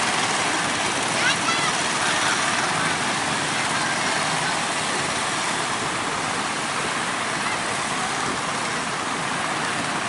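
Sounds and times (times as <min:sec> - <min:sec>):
boat engines running: 0:00.0 - 0:10.0
breaking surf: 0:00.0 - 0:10.0.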